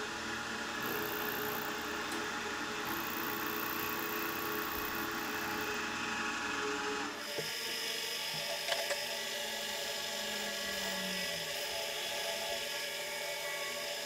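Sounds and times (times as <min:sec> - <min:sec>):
milling machine whine: 0:00.0 - 0:14.0.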